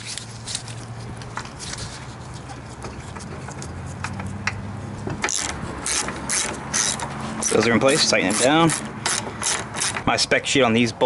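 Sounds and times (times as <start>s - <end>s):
loud rasping noise: 5.2s - 10.1s.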